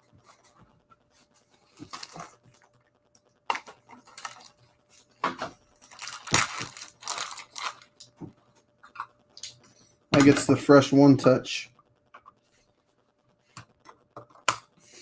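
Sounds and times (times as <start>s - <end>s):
packaging crinkling and rustling: 1.6s - 9.6s.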